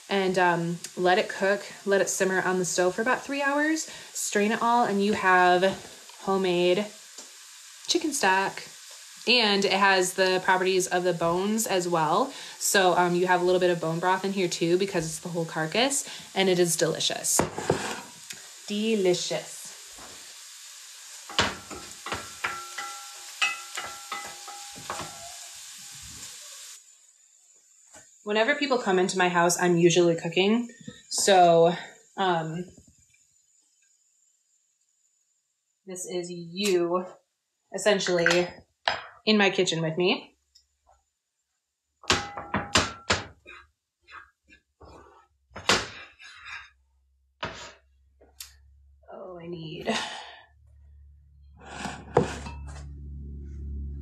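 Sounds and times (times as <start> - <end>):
food sizzling in a pan: 0.0 - 36.9, 47.4 - 47.9
metallic clanks of pots: 21.3 - 25.3, 42.0 - 43.6
utensil clinking against pan: 21.6 - 25.2.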